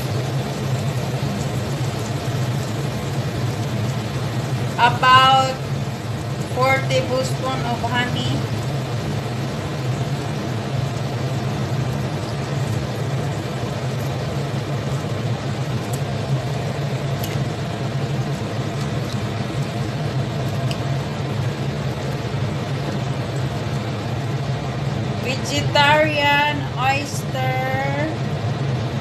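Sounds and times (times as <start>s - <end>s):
electric cooktop humming: 0.0s - 29.0s.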